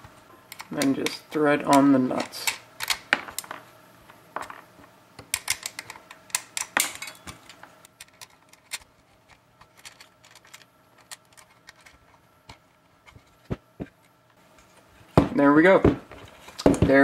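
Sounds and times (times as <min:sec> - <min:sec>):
metal nuts clicking on bolts: 0:05.3 - 0:08.8.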